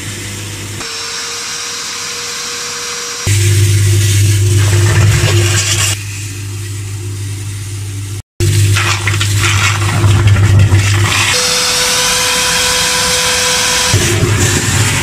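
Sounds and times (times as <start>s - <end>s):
water gushing and splashing: 3.3s - 6.0s, 8.4s - 11.5s, 14.0s - 15.0s
low electric hum: 3.3s - 14.4s.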